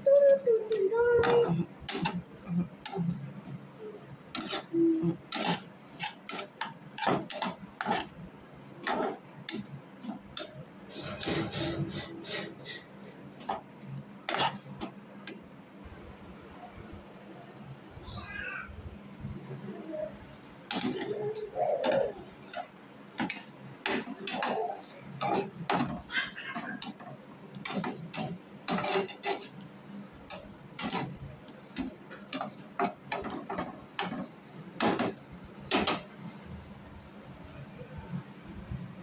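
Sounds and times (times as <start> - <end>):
spatula scraping frying pan: 1.2 - 15.0, 20.7 - 36.0.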